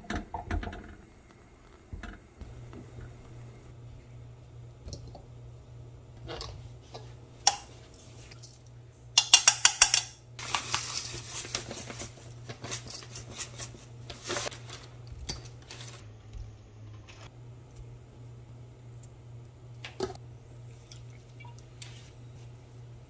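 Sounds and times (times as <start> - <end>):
clinks against metal bowl: 9.2 - 10.2.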